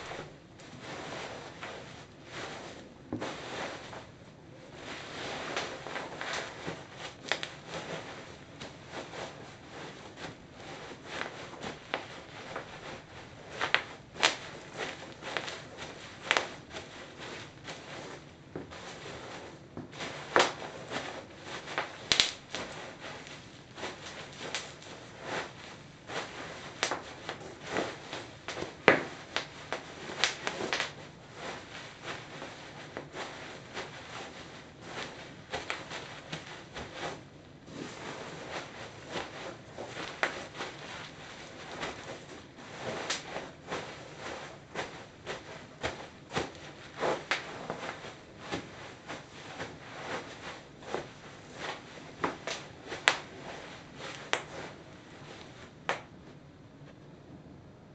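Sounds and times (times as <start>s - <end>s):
bubble wrap crinkling underfoot: 0.0s - 56.2s
bubble wrap bubbles popping: 21.8s - 22.7s, 28.5s - 31.0s.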